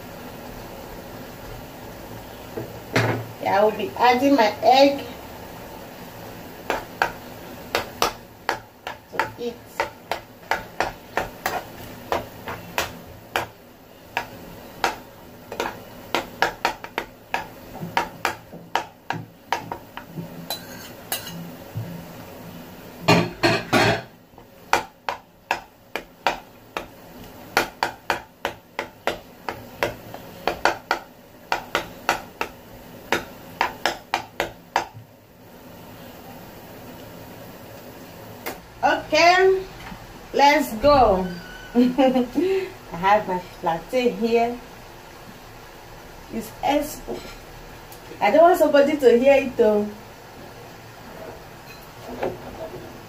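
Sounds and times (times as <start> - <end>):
metal spoon scraping frying pan: 20.4 - 21.4.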